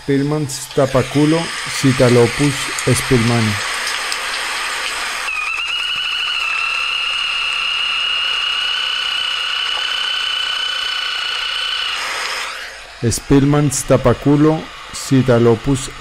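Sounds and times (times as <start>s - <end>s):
steady hiss: 0.0s - 5.3s.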